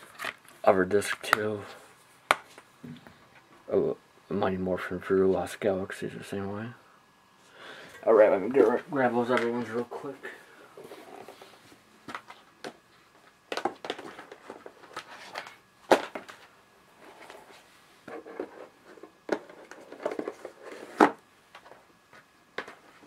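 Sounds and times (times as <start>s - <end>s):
rustling of box sets: 7.9s - 23.0s.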